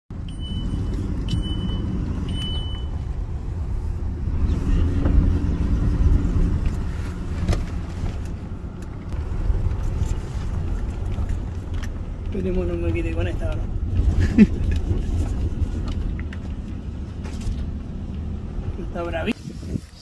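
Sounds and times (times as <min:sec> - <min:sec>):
truck engine and tyres rumbling: 0:00.1 - 0:20.0
short high beeps: 0:00.3 - 0:03.0.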